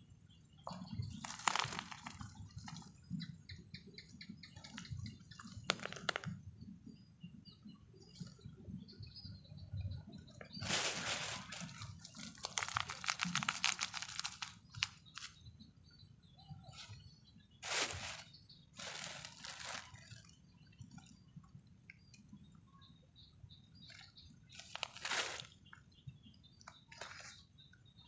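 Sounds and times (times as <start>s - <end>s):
nylon net rustling: 1.2s - 2.8s, 10.6s - 15.3s, 17.6s - 20.2s, 24.6s - 25.6s
plastic bag crinkling: 1.2s - 2.8s, 10.6s - 15.3s, 17.6s - 20.3s, 24.6s - 25.6s.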